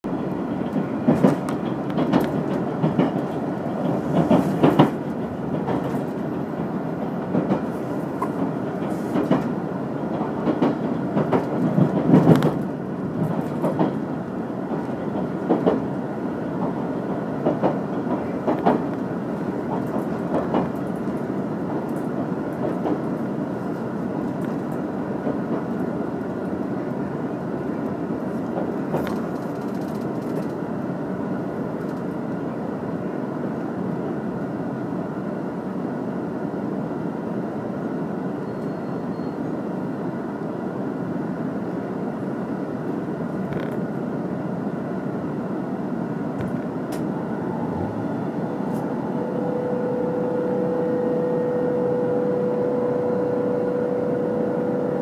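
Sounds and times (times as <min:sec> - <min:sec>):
railway carriage rumble: 0:00.0 - 0:55.0
wheels clacking on rails: 0:00.1 - 0:26.7, 0:27.7 - 0:30.6.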